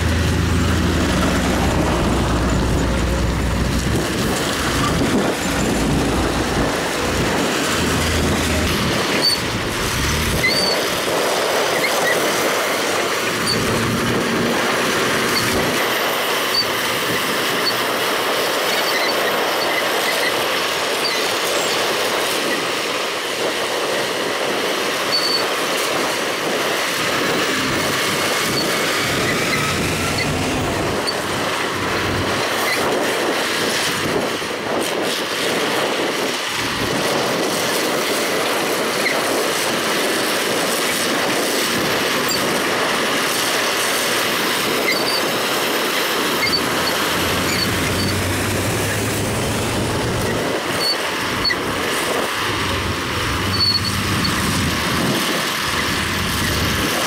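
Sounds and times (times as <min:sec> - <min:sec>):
earthmoving machinery working: 0:00.0 - 0:18.0, 0:26.4 - 0:34.0.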